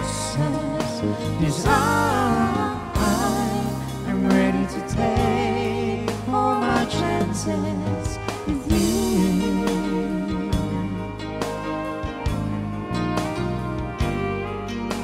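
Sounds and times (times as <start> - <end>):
woman and man singing duet: 0.0 - 11.3
guitar: 0.0 - 15.0
violin: 0.0 - 15.0.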